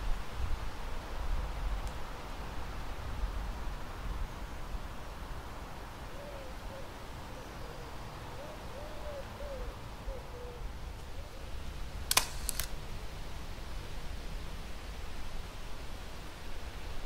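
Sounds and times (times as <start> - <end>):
steady outdoor hiss: 0.0 - 17.0
dove cooing: 6.1 - 11.5
sharp clicks: 12.1 - 12.8.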